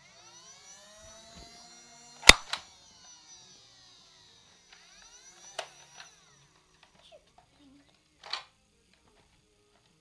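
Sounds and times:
dart blaster snapping: 2.2s - 2.7s.

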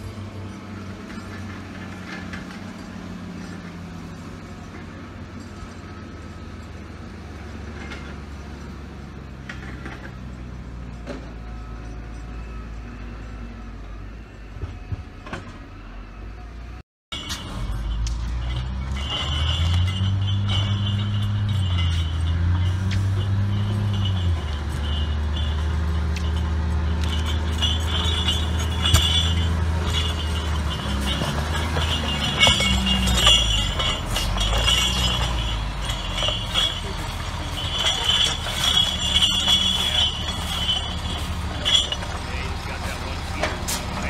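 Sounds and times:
diesel engine running under load: 0.0s - 44.0s
clanks and knocks of grapple: 17.2s - 44.0s.

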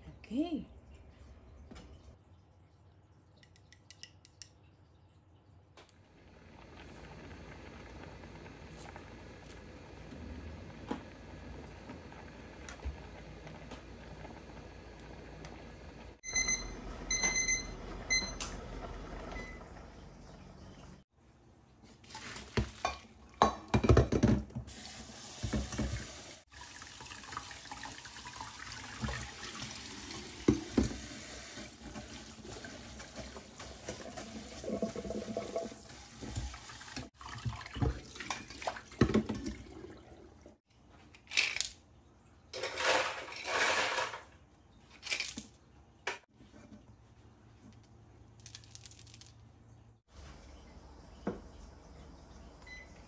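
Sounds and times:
tap running water: 22.2s - 40.6s
ice cubes rattling: 48.4s - 49.4s.

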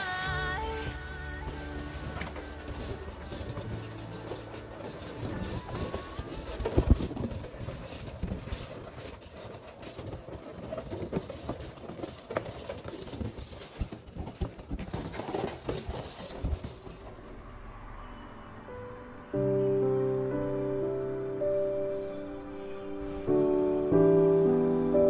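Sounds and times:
balloons rubbing and rustling: 0.7s - 17.2s.

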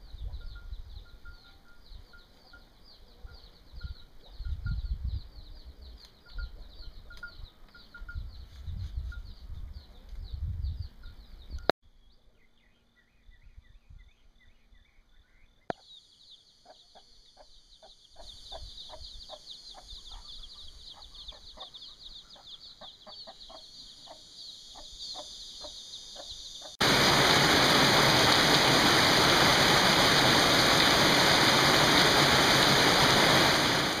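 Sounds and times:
chicks peeping: 16.6s - 26.7s
heavy rain on roofs and concrete: 26.8s - 34.0s.

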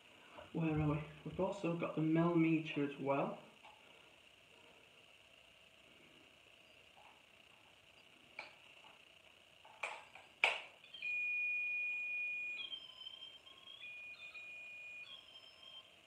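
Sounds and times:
higher wavering electronic tone: 10.8s - 16.0s
steady electronic beep: 10.8s - 16.0s.

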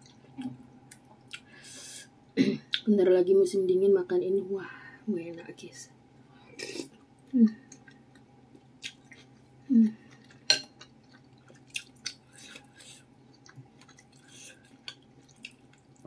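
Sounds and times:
close-up chewing: 7.0s - 16.0s
person humming mm: 9.7s - 10.0s.

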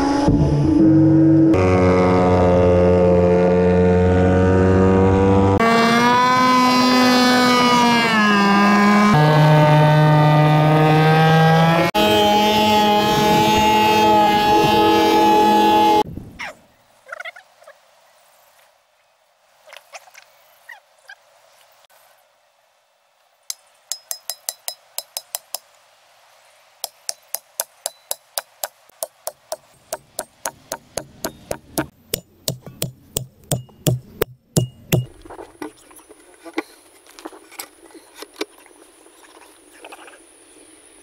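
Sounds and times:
sharp metallic knocks: 23.5s - 25.7s, 26.8s - 35.2s.

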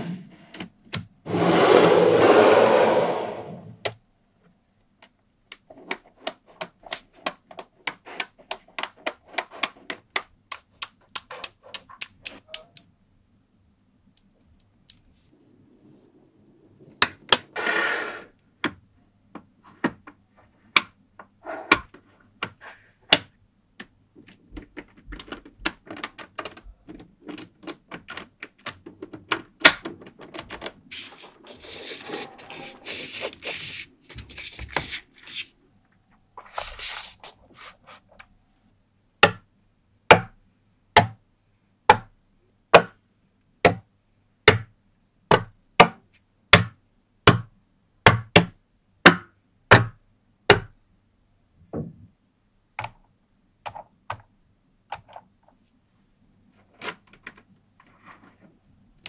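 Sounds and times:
tiles rubbing and sliding: 1.3s - 3.8s, 15.1s - 18.4s, 30.2s - 35.6s, 36.4s - 38.2s.

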